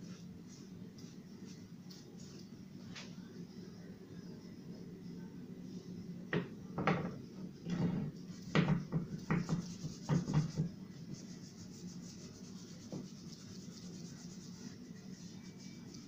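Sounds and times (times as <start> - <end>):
bristle brush scrubbing wood: 9.4 - 15.8.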